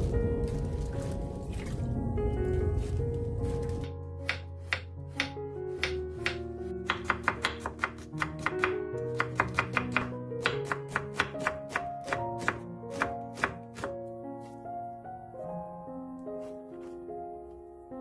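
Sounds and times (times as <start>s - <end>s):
background music: 0.0s - 18.0s
knife chopping on wooden board: 4.3s - 14.6s.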